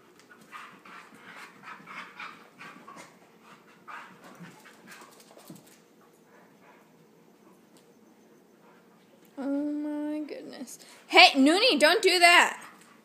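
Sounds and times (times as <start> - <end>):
dogs panting: 0.0 - 7.7, 8.3 - 9.3.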